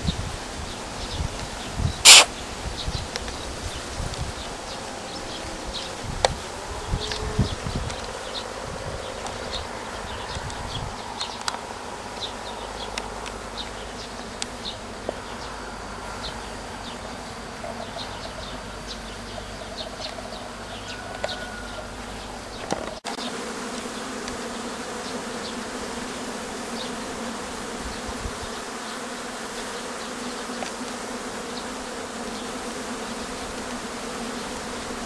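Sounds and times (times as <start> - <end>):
bees buzzing: 0.0 - 35.0
short high chirps: 2.1 - 2.3.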